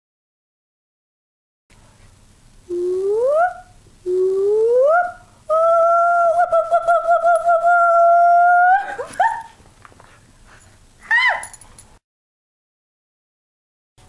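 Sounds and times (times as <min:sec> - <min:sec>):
woman imitating animal hoots: 0:02.7 - 0:09.5.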